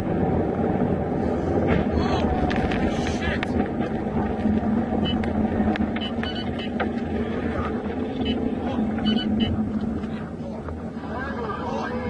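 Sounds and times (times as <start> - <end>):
car interior road noise: 0.0 - 12.0.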